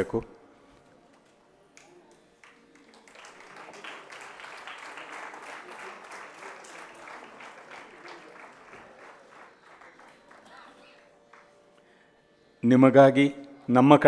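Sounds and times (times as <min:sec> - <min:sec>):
audience applauding: 0:01.2 - 0:11.8.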